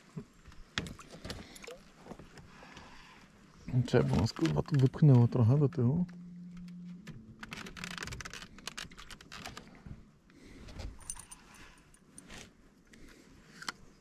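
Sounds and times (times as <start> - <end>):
fishing tackle clicking and jingling: 11.0 - 12.1.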